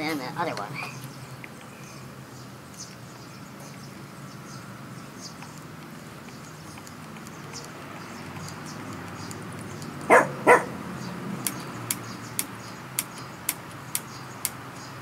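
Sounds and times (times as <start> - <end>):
dog barking: 10.1 - 10.8.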